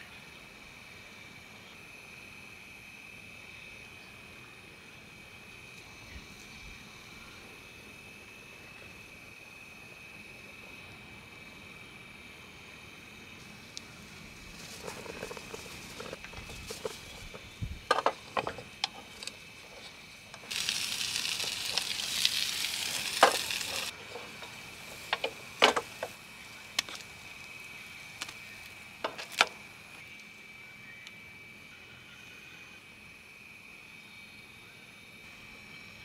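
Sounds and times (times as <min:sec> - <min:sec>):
food sizzling: 0:13.4 - 0:29.4.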